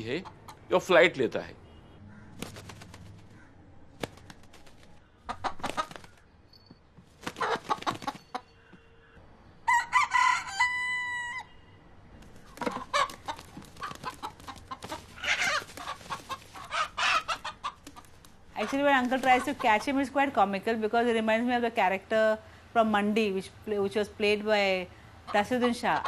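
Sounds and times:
rooster clucking: 5.2 - 6.0, 12.6 - 19.9
rooster crowing: 9.6 - 11.6.

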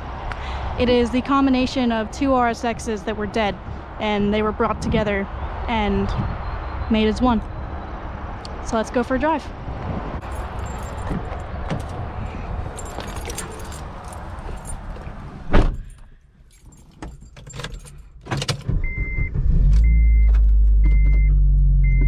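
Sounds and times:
keys jingling: 10.2 - 18.6
car engine starting and idling: 10.2 - 22.0
car door shutting: 15.0 - 16.0.

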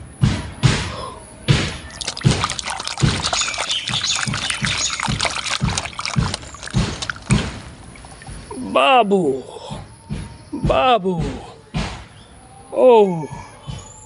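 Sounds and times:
water sloshing in a steel bowl: 1.6 - 8.6.

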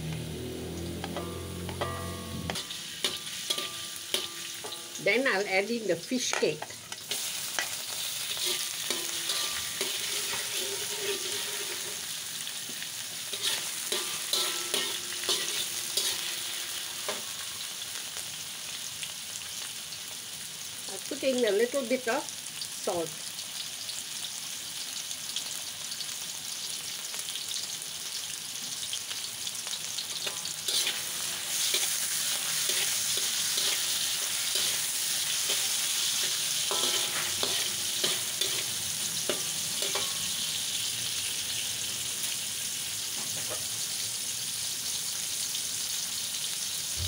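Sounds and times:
food sizzling in hot oil: 0.0 - 47.0
metal spatula scraping wok: 0.6 - 5.6, 6.2 - 12.5, 13.2 - 17.8, 30.0 - 40.7.

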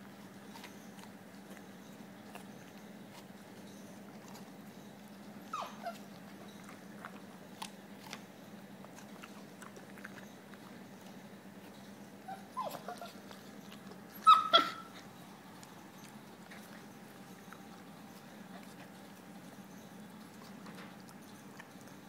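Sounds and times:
dog chewing food: 0.0 - 22.0
dog whimpering: 5.4 - 6.8, 12.2 - 15.2
dog high cry: 5.5 - 6.2, 12.2 - 13.4, 14.1 - 15.2.

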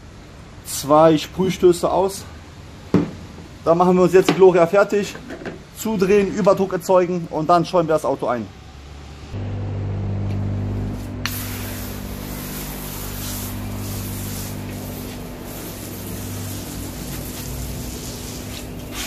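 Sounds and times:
steady low hum: 8.6 - 19.0
foam sprayer hissing: 10.6 - 19.0.

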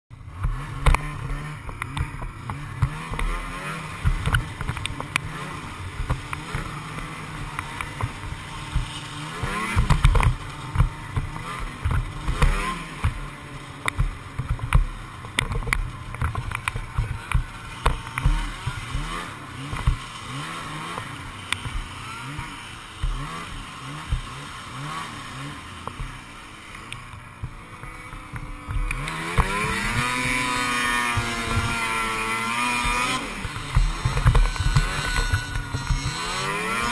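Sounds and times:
snowmobile engine revving: 0.2 - 36.9
sled knocks and bumps: 27.1 - 36.9.

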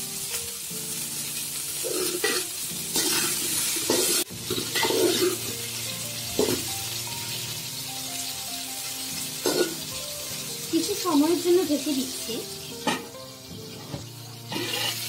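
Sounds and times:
vegetables sizzling in oil: 0.0 - 15.0
metal spatula scraping pan: 1.8 - 5.5, 13.8 - 15.0.

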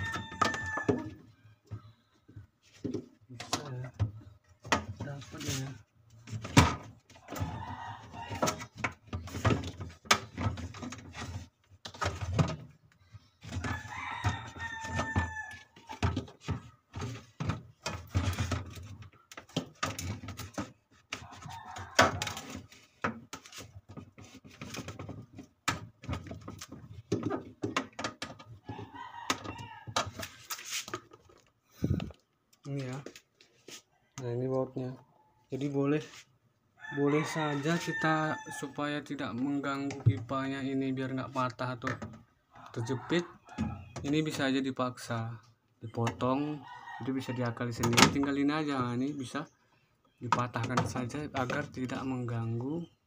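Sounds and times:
rooster crowing: 0.0 - 1.2, 7.3 - 8.6, 13.6 - 15.7, 36.8 - 38.8.

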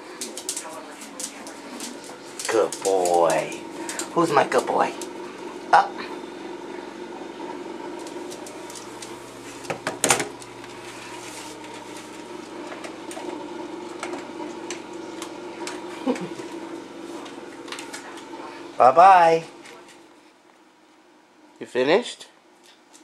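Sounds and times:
dog eating from metal bowl: 0.0 - 5.3
steady mechanical hum: 0.0 - 23.0.

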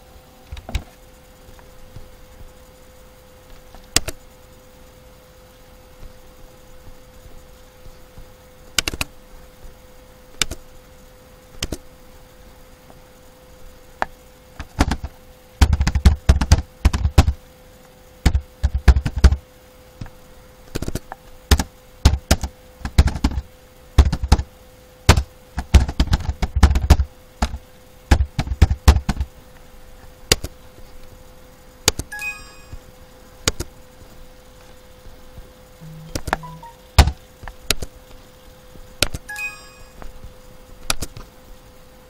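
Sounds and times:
faint steady hum: 0.0 - 42.0
computer keyboard typing: 15.6 - 17.4, 35.8 - 37.2.

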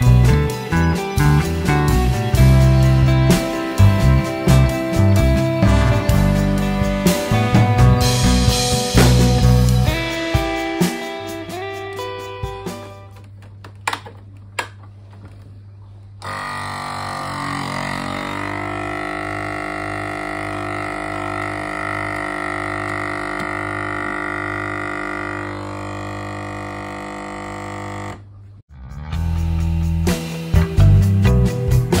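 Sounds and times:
vacuum sealer pump droning: 16.2 - 28.4.

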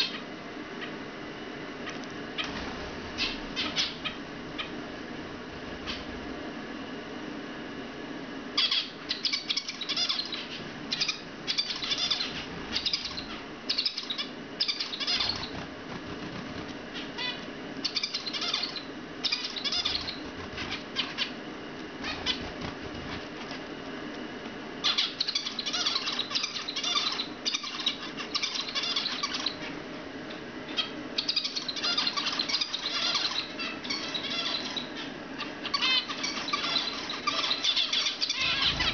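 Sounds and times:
finches chirping and singing: 2.4 - 4.8, 8.6 - 21.3, 22.0 - 23.2, 24.8 - 29.7, 30.7 - 38.9
bird wing flaps: 15.4 - 16.9, 22.1 - 23.6.

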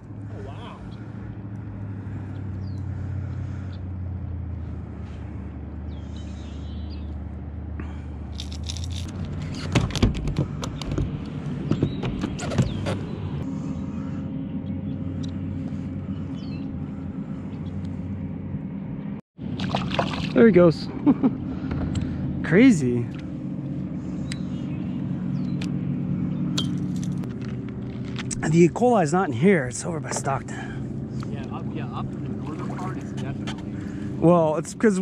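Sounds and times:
low droning motor hum: 0.0 - 35.0
sharp clicks and knocks: 8.5 - 13.1.

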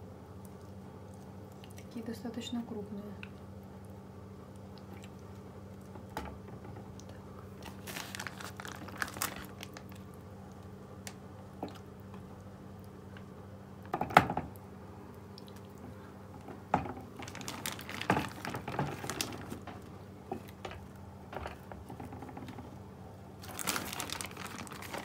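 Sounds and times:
low steady hum: 0.0 - 25.0
plastic bag crinkling: 7.6 - 10.2, 17.1 - 20.6, 23.4 - 25.0.

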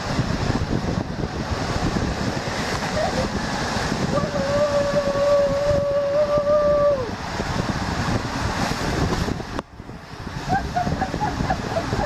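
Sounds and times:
rushing water: 0.0 - 12.0
wind buffeting the microphone: 0.0 - 12.0
person yelling: 4.2 - 7.1.

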